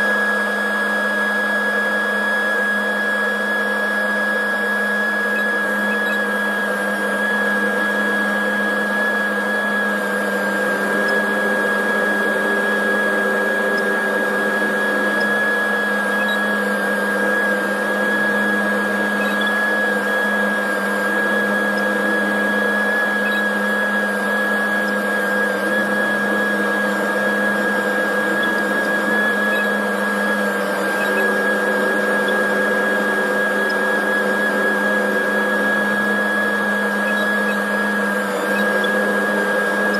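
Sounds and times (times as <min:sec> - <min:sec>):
high whine: 0:04.9 - 0:39.9
tractor engine drone: 0:06.9 - 0:37.8.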